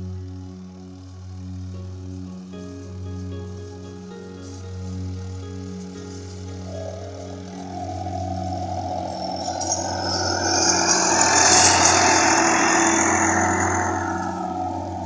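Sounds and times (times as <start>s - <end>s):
diesel tractor engine: 6.2s - 15.0s.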